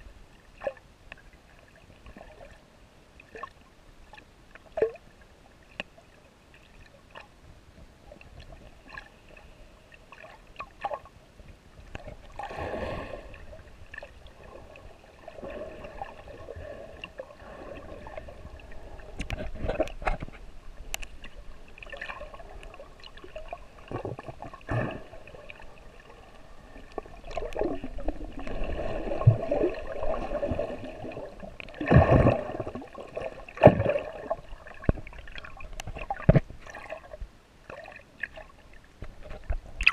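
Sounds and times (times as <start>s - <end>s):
water sloshing and gurgling: 0.0s - 39.9s.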